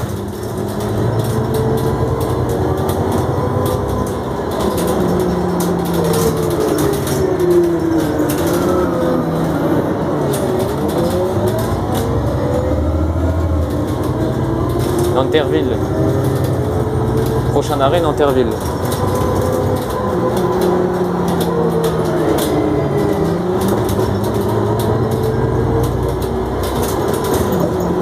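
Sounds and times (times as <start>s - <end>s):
bus engine and gearbox whining: 0.0s - 28.0s.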